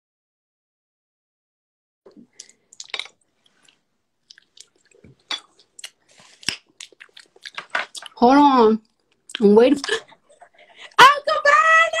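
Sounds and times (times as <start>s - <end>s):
person chewing wetly: 2.1s - 8.2s.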